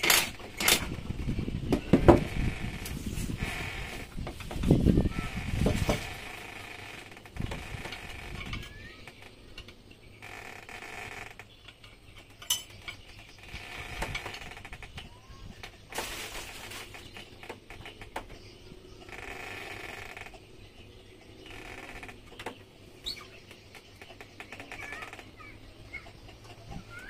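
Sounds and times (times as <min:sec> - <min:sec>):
metal parts clicking and knocking: 0:00.0 - 0:01.0, 0:05.7 - 0:18.4.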